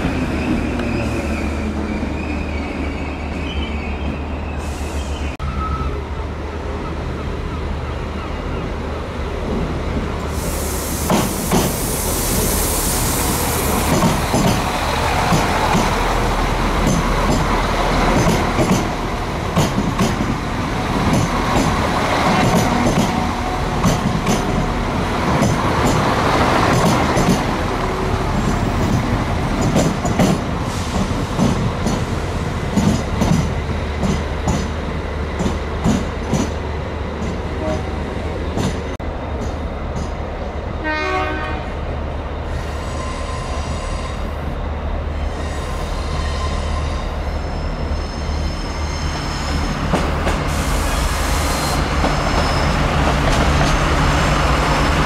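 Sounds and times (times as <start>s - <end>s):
train wheels clicking over rail joints: 13.8s - 16.1s, 16.8s - 20.4s, 21.0s - 27.7s, 28.3s - 37.5s.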